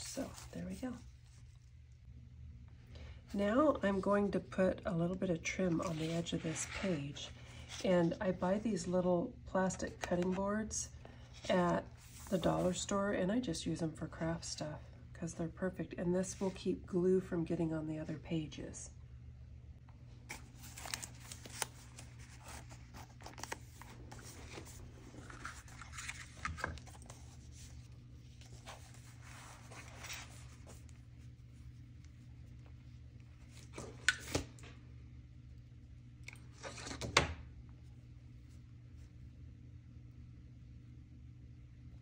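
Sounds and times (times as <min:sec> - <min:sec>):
paper and plastic rustling: 0:05.6 - 0:07.9, 0:20.3 - 0:31.0.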